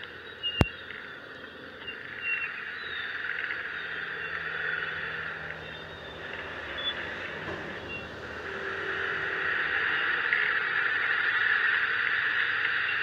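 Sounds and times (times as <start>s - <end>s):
traffic engine noise: 0.0s - 13.0s
tyres hissing on wet road: 3.2s - 13.0s.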